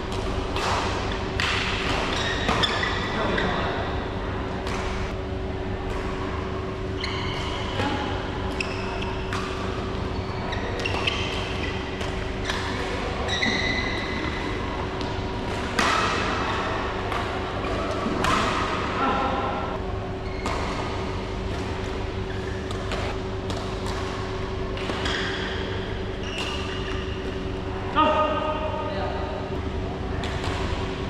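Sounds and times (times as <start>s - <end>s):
racket hitting shuttlecock: 0.0s - 3.1s, 7.3s - 10.0s, 10.6s - 19.2s, 20.4s - 27.4s
steady hum: 0.0s - 31.0s
shoes squeaking on court: 2.1s - 3.7s, 9.9s - 12.6s, 13.2s - 14.6s, 20.2s - 23.4s, 24.3s - 27.5s.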